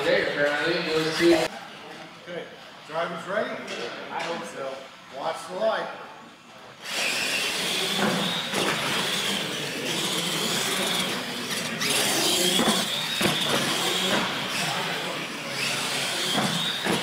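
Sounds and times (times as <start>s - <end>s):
toy truck motors whining: 6.8s - 17.0s.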